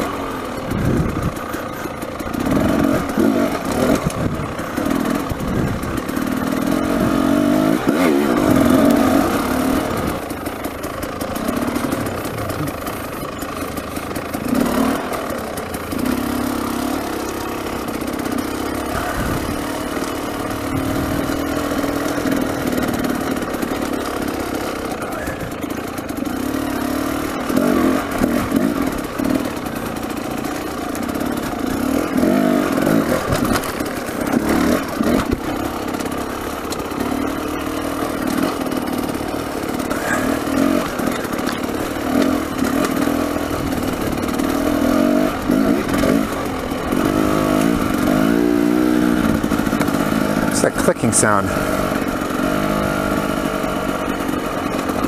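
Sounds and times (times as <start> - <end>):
dirt bike engine revving: 0.0 - 55.0
bike clattering over stones: 38.1 - 43.2.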